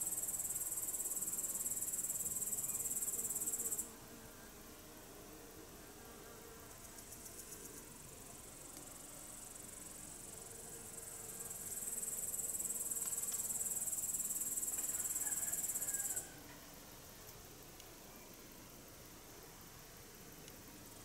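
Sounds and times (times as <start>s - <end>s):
insect buzzing trill: 0.0s - 4.6s, 9.4s - 16.4s.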